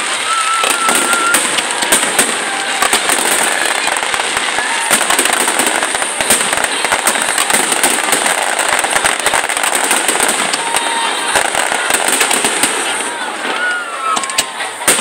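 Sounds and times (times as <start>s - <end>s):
fireworks bursting and crackling: 0.0s - 15.0s.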